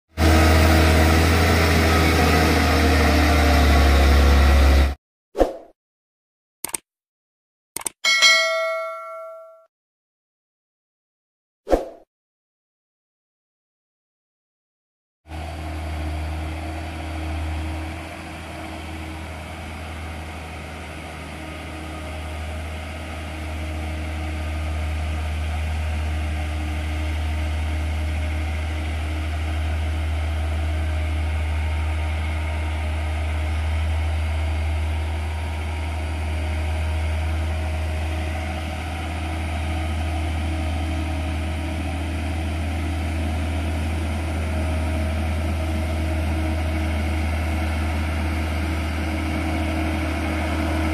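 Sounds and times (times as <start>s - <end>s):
truck diesel engine labouring: 0.1s - 5.0s, 15.3s - 50.9s.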